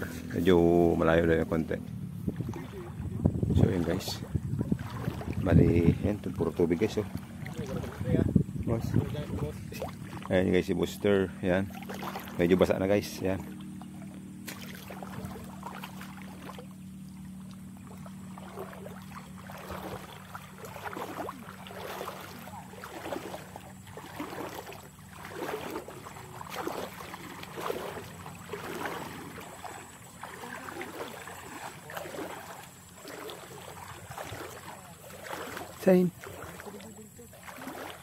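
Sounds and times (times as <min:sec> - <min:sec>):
footsteps splashing in water: 0:00.0 - 0:38.0.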